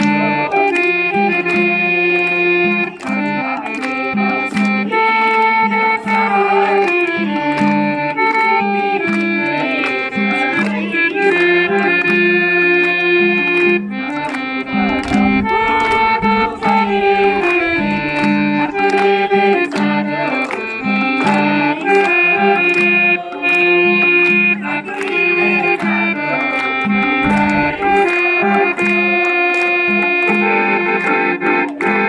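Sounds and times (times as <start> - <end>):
harmonium melody: 0.0 - 32.0
hand drum beating: 13.3 - 26.2, 26.8 - 30.5.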